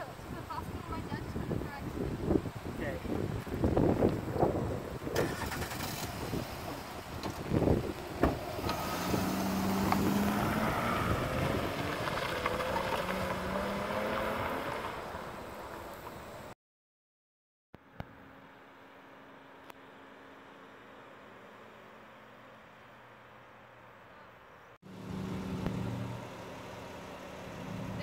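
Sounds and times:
car engine pulling away: 4.7 - 16.5, 24.8 - 28.0.

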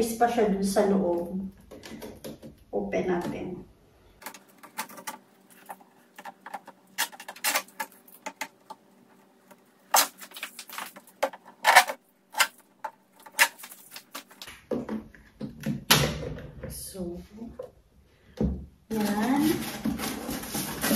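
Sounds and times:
plastic packaging clicks and rustles: 4.2 - 14.7.

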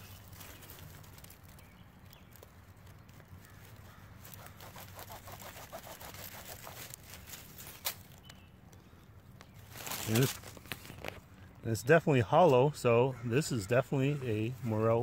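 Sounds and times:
knife sawing mushroom stem: 4.3 - 7.2.

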